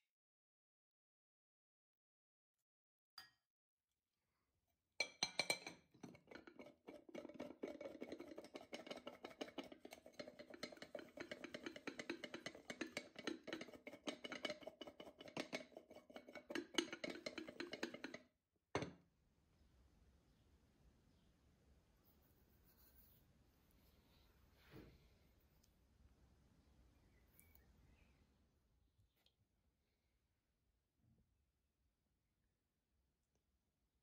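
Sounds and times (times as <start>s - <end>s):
fruit rattling in glass bowl: 5.0s - 18.2s.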